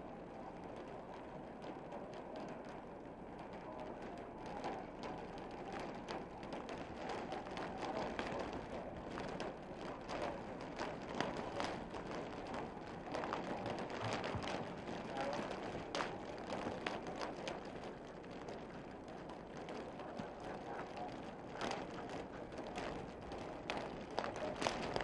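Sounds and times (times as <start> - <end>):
faint clicks and taps: 0.0 - 25.0
low rumbling hiss: 0.0 - 25.0.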